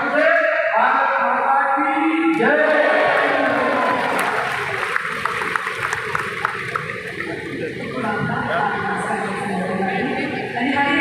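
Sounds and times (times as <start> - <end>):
crowd cheering and shouting: 2.3 - 6.1.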